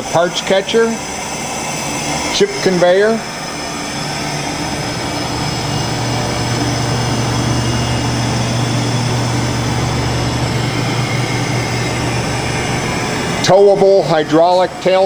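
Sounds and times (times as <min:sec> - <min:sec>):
shop machinery humming: 0:00.0 - 0:15.0.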